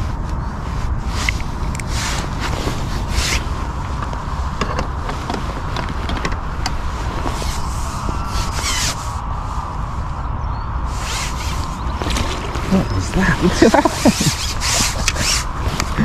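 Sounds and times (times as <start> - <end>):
gear rustling and scraping: 0.0 - 9.2, 10.9 - 16.0
wind on microphone: 0.0 - 16.0
brushing sweep: 6.8 - 10.2, 10.8 - 16.0.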